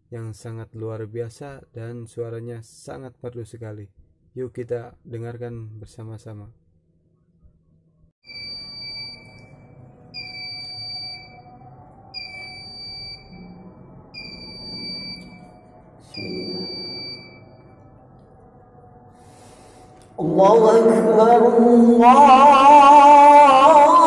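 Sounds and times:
electronic beeps: 8.3 - 18.2
low hum: 8.4 - 24.0.

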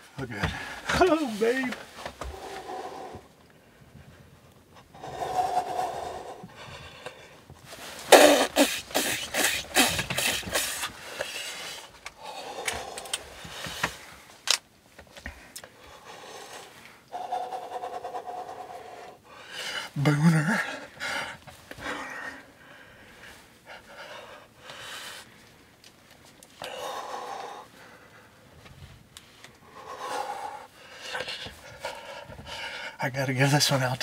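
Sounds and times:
hunters breathing hard: 0.1 - 14.4, 15.0 - 33.6
breathy laughter: 8.1 - 11.0.

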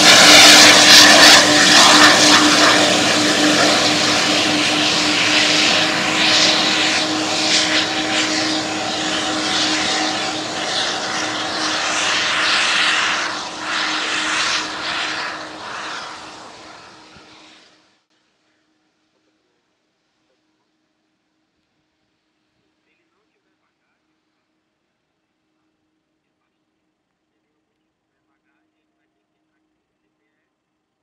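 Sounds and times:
jet engines rushing: 0.0 - 17.7.

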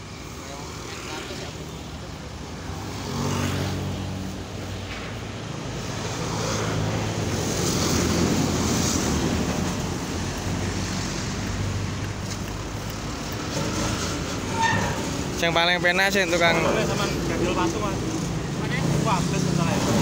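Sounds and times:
road noise: 0.0 - 20.0
motorcycle passing: 2.6 - 4.6.

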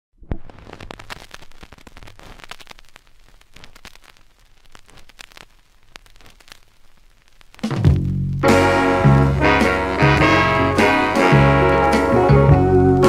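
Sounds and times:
vinyl crackles and pops: 0.2 - 13.0.

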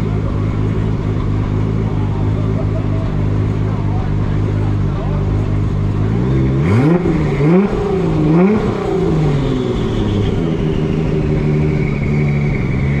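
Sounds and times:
car engine revving and running: 0.0 - 13.0.

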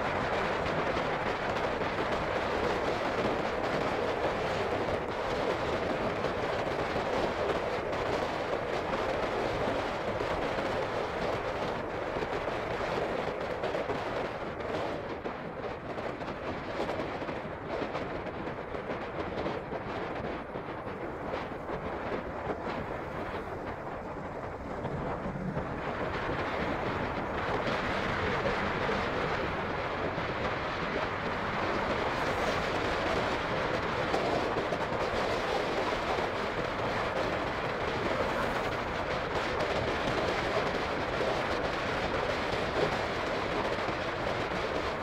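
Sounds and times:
motorcycle riding noise: 19.2 - 45.0.

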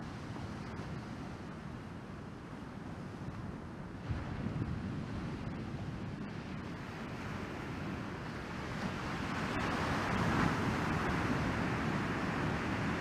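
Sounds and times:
wind rumbling on microphone: 0.0 - 13.0
ocean surf breaking: 4.1 - 13.0.

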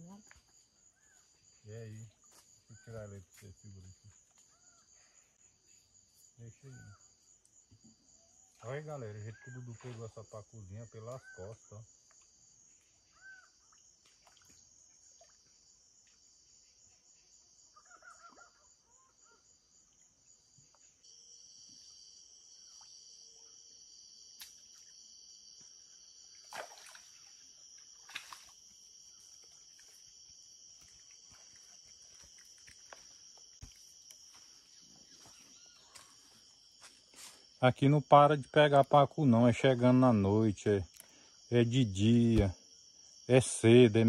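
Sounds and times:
insect chirring: 0.0 - 44.0
high insect buzz: 19.0 - 37.6.

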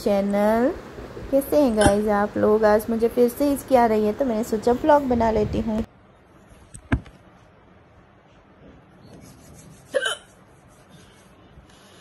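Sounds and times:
woman hiccupping: 9.9 - 10.3.

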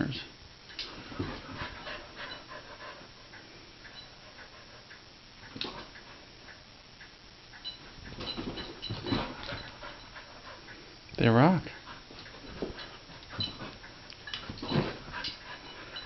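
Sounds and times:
dog moving on carpet: 12.0 - 16.0.

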